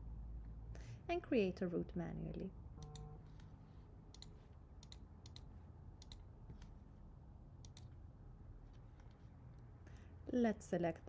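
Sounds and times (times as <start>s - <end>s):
low steady hum: 0.0s - 11.0s
computer mouse clicking: 4.1s - 6.7s, 7.6s - 8.0s.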